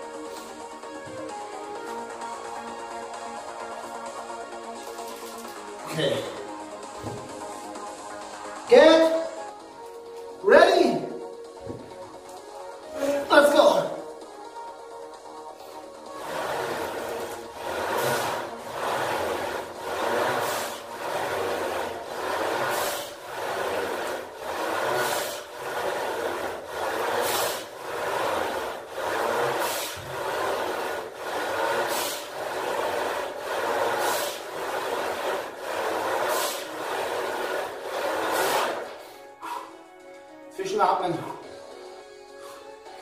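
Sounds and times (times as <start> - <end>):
man breathing hard: 38.3 - 39.9, 42.3 - 43.0.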